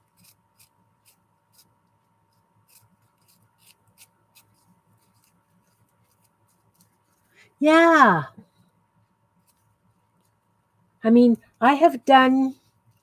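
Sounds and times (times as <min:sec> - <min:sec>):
crepe paper crinkling: 0:00.0 - 0:07.4.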